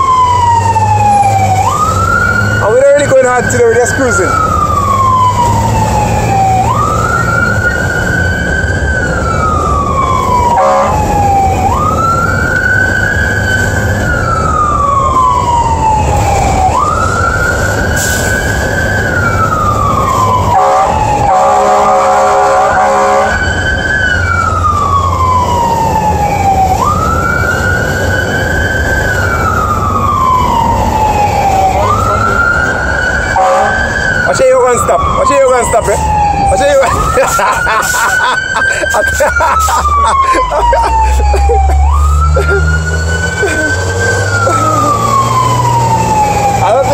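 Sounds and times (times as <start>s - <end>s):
fire engine siren wailing: 0.0s - 46.9s
road noise: 0.0s - 46.9s
truck engine drone: 0.0s - 46.9s
horn blast: 10.5s - 11.1s, 20.5s - 23.4s, 33.4s - 33.8s.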